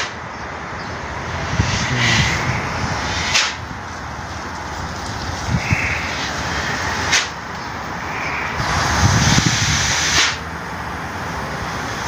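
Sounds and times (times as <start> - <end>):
gas hissing through hose: 1.4 - 3.7, 5.5 - 7.4, 8.5 - 10.5.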